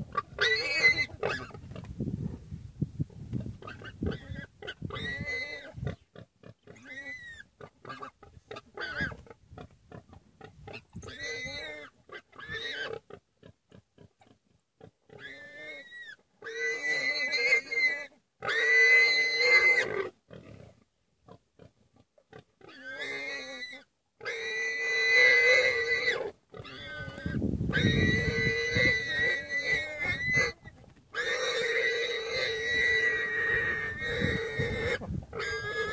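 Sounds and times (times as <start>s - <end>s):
warthog squealing: 0.1s - 1.6s, 3.6s - 6.0s, 6.8s - 9.3s, 10.7s - 13.0s, 15.2s - 20.1s, 22.6s - 35.9s.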